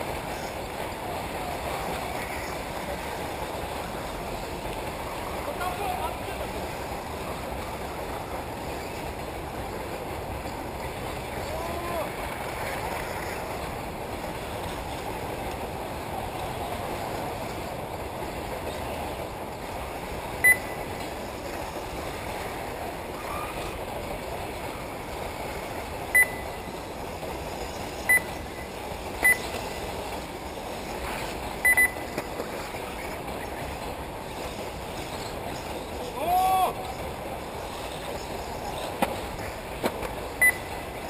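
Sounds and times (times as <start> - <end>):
outdoor noise: 0.0 - 41.0
high electronic beeps: 20.4 - 20.8, 26.1 - 26.6, 28.1 - 29.5, 31.6 - 32.1, 40.4 - 40.7.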